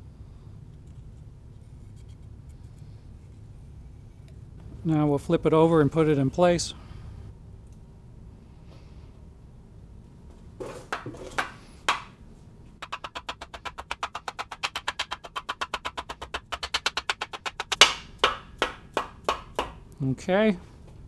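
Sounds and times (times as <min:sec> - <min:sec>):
mallet tapping on metal: 0:12.8 - 0:19.8.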